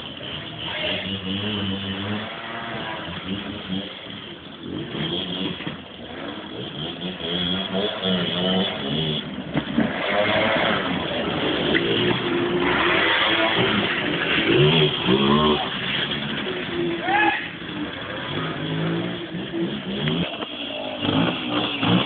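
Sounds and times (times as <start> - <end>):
moped and scooter engines revving: 0.0 - 22.0.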